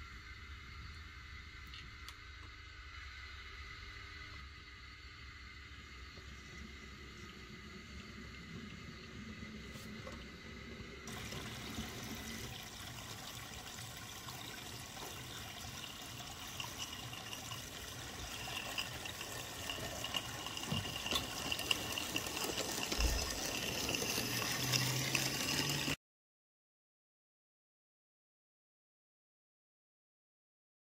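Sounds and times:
water trickling and splashing: 11.1s - 26.0s.

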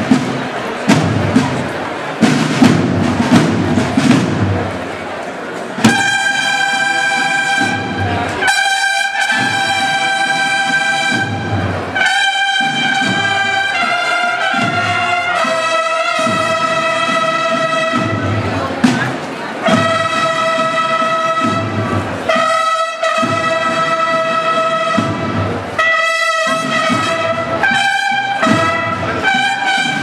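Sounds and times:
drums playing march: 0.0s - 30.0s
bugles playing long notes: 5.8s - 18.6s, 19.6s - 30.0s.

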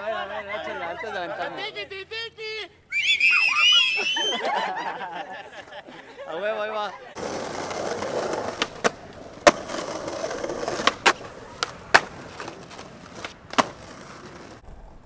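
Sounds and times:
skateboard wheels rolling on concrete: 6.8s - 15.0s
skateboard clacks on landing: 7.7s - 14.6s.

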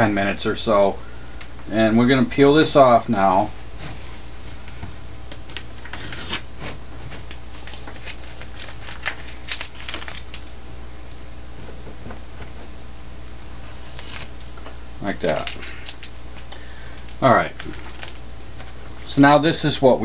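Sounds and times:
tape crackling and rustling: 3.0s - 10.6s, 13.4s - 19.2s.

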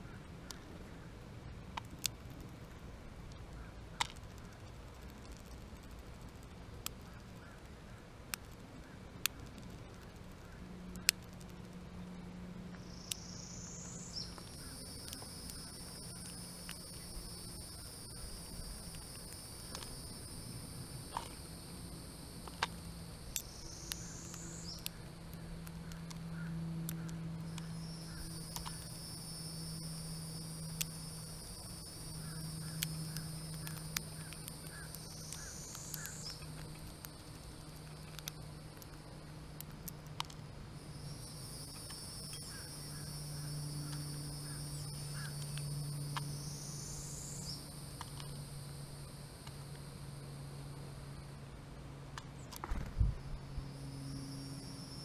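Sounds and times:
low steady hum: 0.0s - 55.0s
beak cracking seeds: 4.0s - 7.7s, 8.3s - 11.8s, 14.2s - 20.1s, 22.4s - 29.0s, 29.7s - 40.5s
high-pitched insect buzz: 12.9s - 25.0s, 26.3s - 38.8s, 40.8s - 50.4s, 52.7s - 55.0s.

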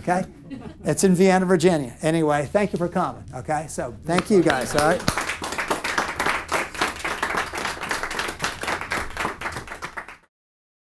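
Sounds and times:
people applauding: 4.2s - 10.3s.

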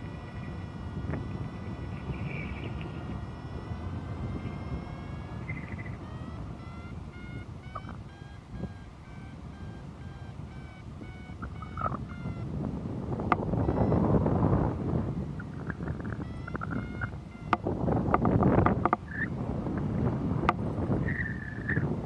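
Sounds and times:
short rising beeps: 0.0s - 12.7s, 13.3s - 17.8s
variometer electronic tone: 0.0s - 22.0s
wind on microphone: 0.0s - 22.0s.

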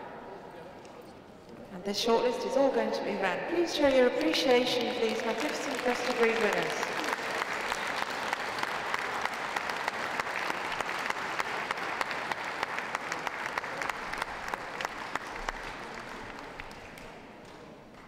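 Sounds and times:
audience applauding: 5.0s - 18.0s.

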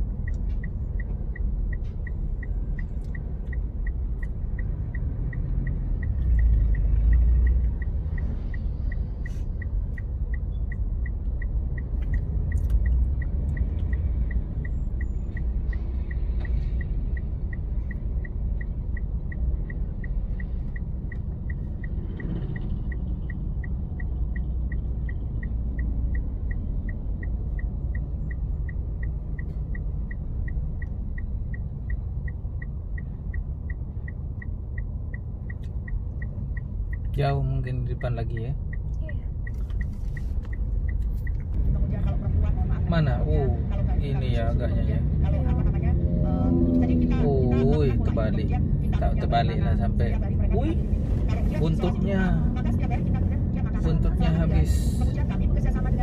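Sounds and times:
steady high tick: 0.0s - 41.7s
car engine and tyres rumble: 0.0s - 56.0s.

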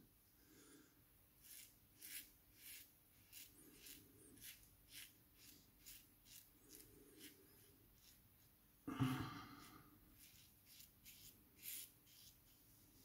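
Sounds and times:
razor scraping stubble: 1.4s - 8.2s, 9.6s - 12.5s.

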